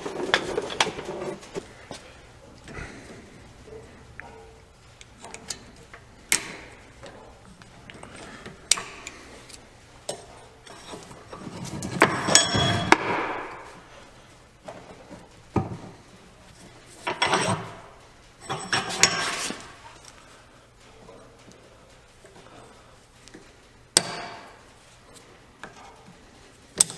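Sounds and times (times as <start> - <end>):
metallic clattering: 3.3 - 14.1
metallic ring: 12.1 - 13.0.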